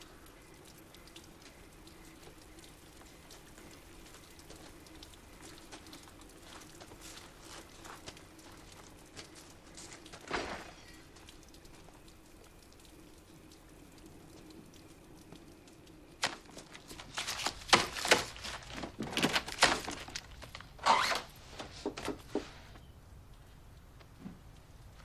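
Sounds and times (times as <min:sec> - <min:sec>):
rustling: 0:16.2 - 0:22.8.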